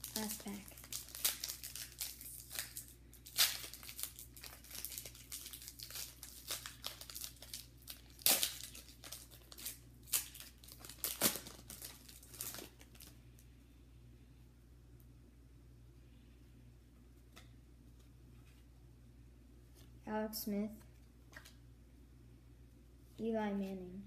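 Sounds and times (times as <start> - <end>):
foil wrapper tearing and crinkling: 0.0 - 13.2.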